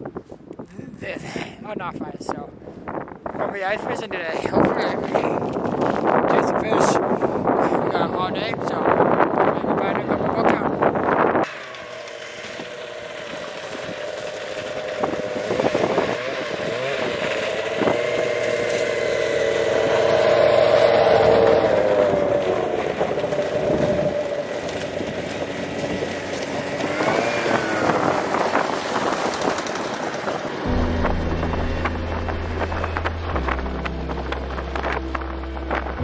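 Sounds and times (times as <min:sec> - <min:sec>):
snowmobile engine passing by: 0:11.5 - 0:36.0.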